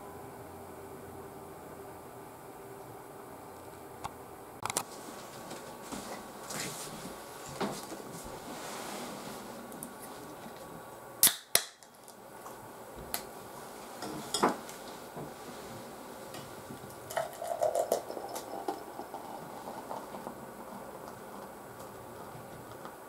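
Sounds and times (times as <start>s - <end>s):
drink can snapping open: 11.2s - 11.9s
drink pouring into metal mug: 17.0s - 21.5s.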